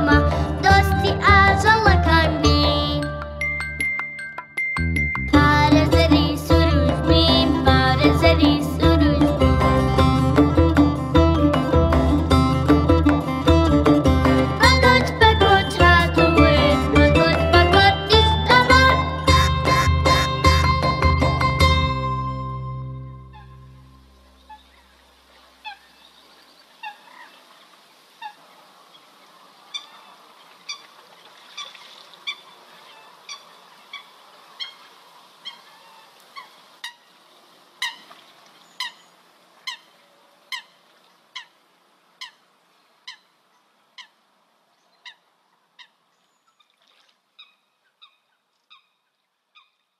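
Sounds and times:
waterbird calling: 18.5s - 21.0s, 23.2s - 44.2s, 44.8s - 49.9s
faint steady hiss: 23.6s - 46.6s.

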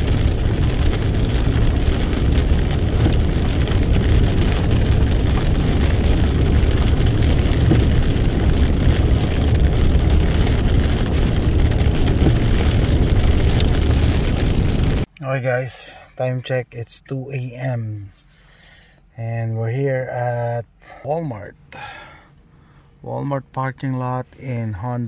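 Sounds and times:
engine and tyre rumble: 0.0s - 15.1s
rain and wet pavement hiss: 0.0s - 15.1s.

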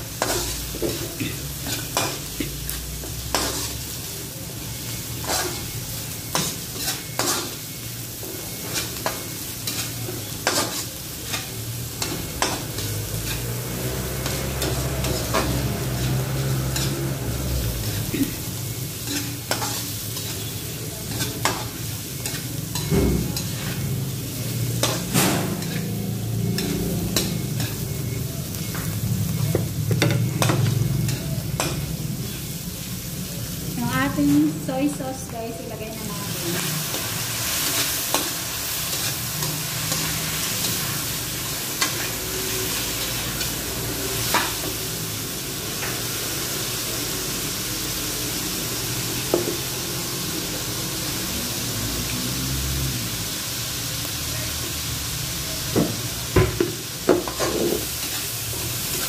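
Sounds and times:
pork sizzling in oil: 0.0s - 59.0s
metal spatula scraping wok: 0.1s - 4.0s, 5.0s - 28.8s, 57.2s - 59.0s.

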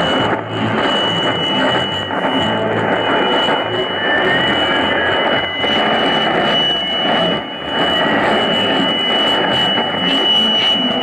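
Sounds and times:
steady high whistle: 0.0s - 11.0s.

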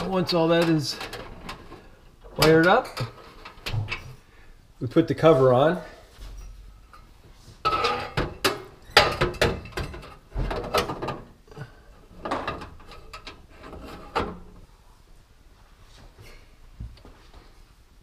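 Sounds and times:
sheet metal scraping and knocking: 7.6s - 11.3s, 12.2s - 14.6s.

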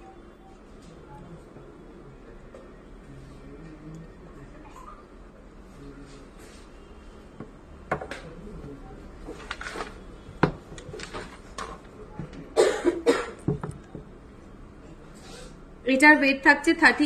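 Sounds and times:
person coughing: 12.6s - 13.5s.

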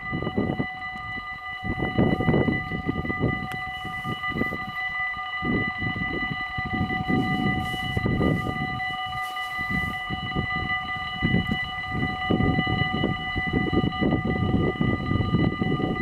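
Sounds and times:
level-crossing warning bells: 0.0s - 16.0s.

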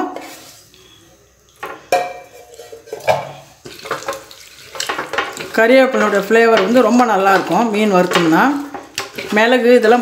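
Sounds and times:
knocks and clinks from metal bowl: 1.9s - 4.2s.

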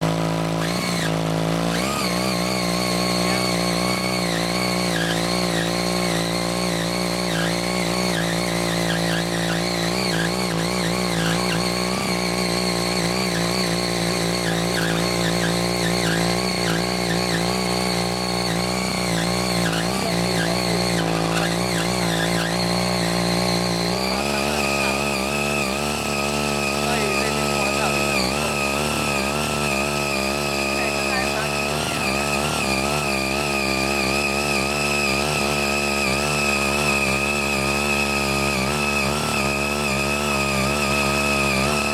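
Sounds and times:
cultivator engine running: 0.0s - 41.9s.

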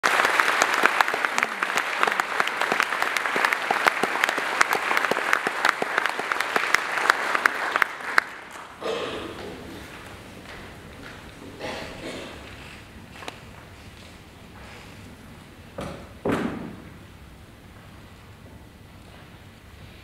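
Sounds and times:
audience applauding: 0.0s - 11.7s
faint crowd murmur: 1.0s - 5.0s, 8.6s - 15.7s.

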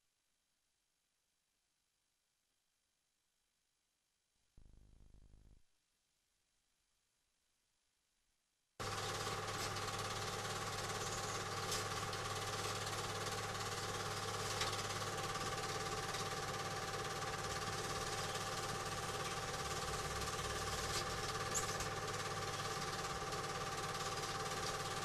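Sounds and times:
film projector whirring and clattering: 8.8s - 25.0s.

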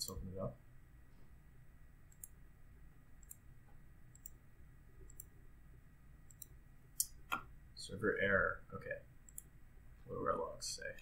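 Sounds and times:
faint computer mouse clicks: 2.1s - 2.4s, 4.1s - 4.4s, 5.1s - 5.3s, 6.3s - 7.4s.

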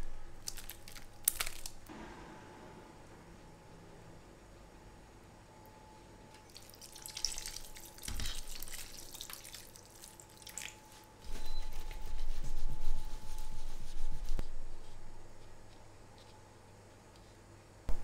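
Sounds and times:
water trickling into metal pan: 6.5s - 10.8s.

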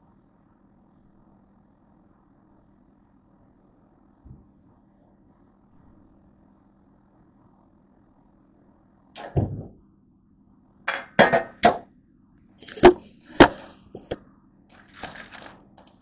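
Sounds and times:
metal sheet pan clanking: 10.9s - 11.8s, 12.6s - 14.2s
scraping and rustling: 12.6s - 16.0s.

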